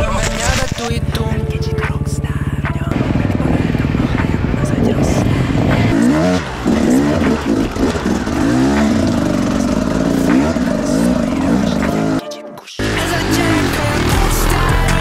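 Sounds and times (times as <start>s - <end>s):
dirt bike engine revving: 0.0s - 12.2s, 12.8s - 15.0s.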